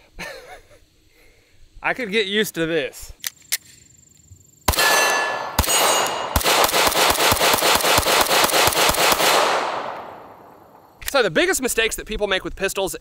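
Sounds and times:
pistol shots: 0:04.7 - 0:11.0
metallic ring: 0:04.8 - 0:06.3.

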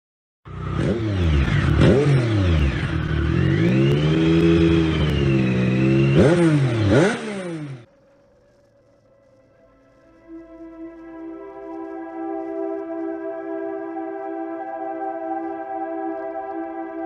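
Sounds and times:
motorcycle engine revving: 0:00.5 - 0:09.4
faint soft music: 0:07.9 - 0:17.0.

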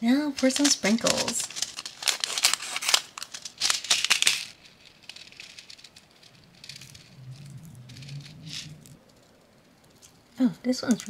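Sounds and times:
scissors cutting plastic: 0:00.4 - 0:06.0
plastic packet crinkling: 0:00.4 - 0:09.0
sprinkles pattering: 0:00.4 - 0:09.0.

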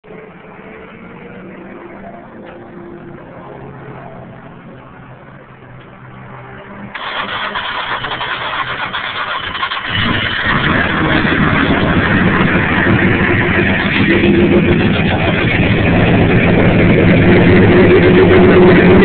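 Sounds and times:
race engine cranking and starting: 0:07.0 - 0:19.0.

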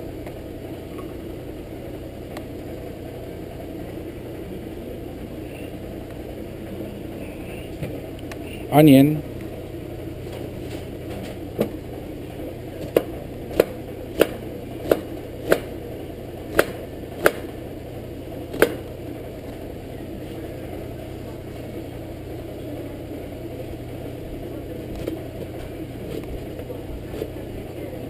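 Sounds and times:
low hum: 0:00.0 - 0:28.0
knife chopping on cutting board: 0:16.5 - 0:17.5.

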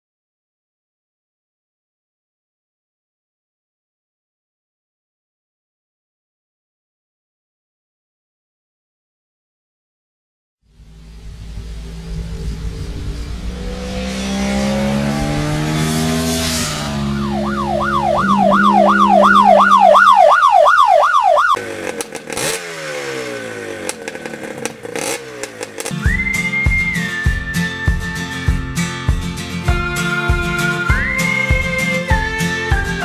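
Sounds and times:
motorcycle engine revving: 0:10.7 - 0:29.9
steady high tone: 0:16.6 - 0:21.6.

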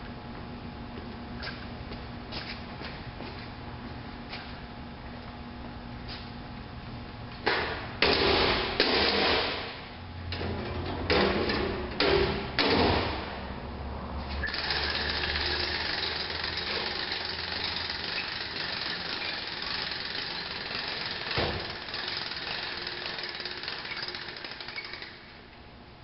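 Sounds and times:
lift mechanism clattering: 0:14.4 - 0:25.4.

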